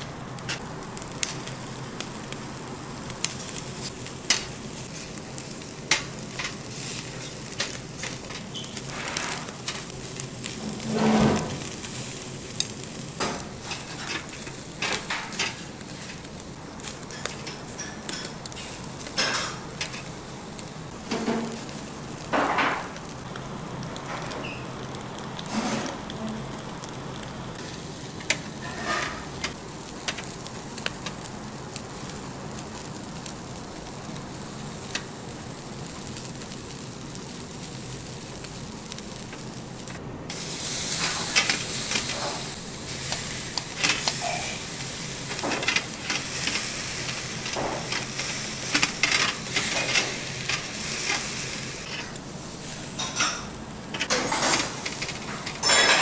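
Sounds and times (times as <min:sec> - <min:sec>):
food sizzling as it fries: 0:00.0 - 0:56.0.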